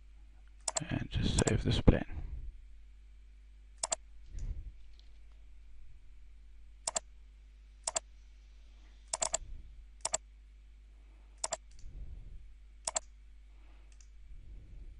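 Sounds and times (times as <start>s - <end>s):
faint electrical hum: 0.0s - 14.9s
computer mouse clicks: 0.6s - 1.6s, 3.8s - 5.1s, 6.9s - 7.1s, 9.1s - 9.4s, 10.0s - 10.2s, 11.4s - 11.9s, 12.8s - 13.1s, 13.9s - 14.1s.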